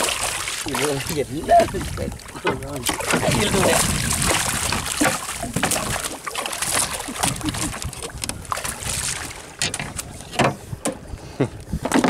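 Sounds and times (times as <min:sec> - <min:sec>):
water splashing by boat: 0:00.0 - 0:12.0
knocks on boat: 0:02.4 - 0:07.4, 0:11.8 - 0:12.0.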